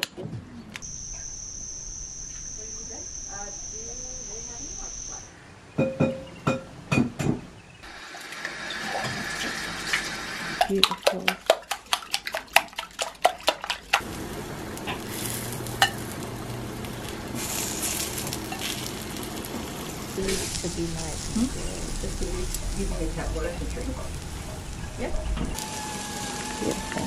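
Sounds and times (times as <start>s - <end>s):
steady hiss: 0.8s - 5.3s, 14.0s - 27.0s.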